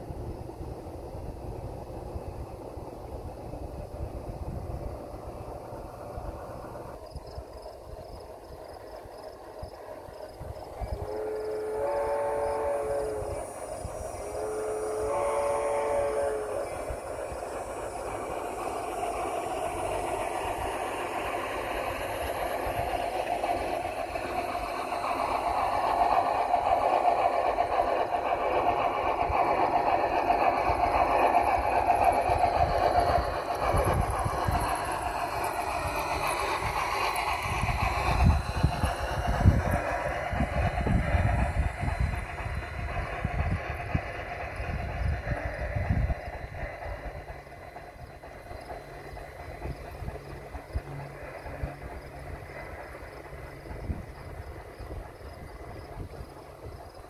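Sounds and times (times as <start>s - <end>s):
train wheels clattering on track: 0.0s - 57.0s
steam locomotive whistle: 10.8s - 17.2s.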